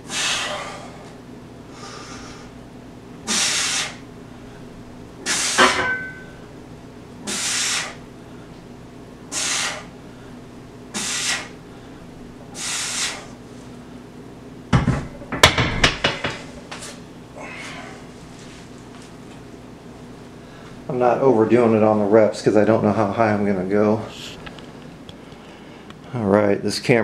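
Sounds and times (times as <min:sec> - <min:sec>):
man exhaling forcefully: 0:00.0 - 0:01.1, 0:03.3 - 0:04.0, 0:05.2 - 0:05.7, 0:07.2 - 0:08.0, 0:09.3 - 0:09.9, 0:10.9 - 0:11.6, 0:12.5 - 0:13.3.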